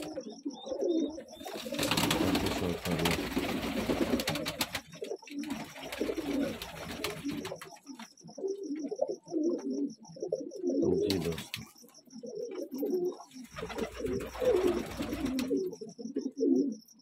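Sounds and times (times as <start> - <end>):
pigeons cooing: 0.0 - 17.0
rustling of feathers: 1.4 - 8.1, 13.4 - 15.6.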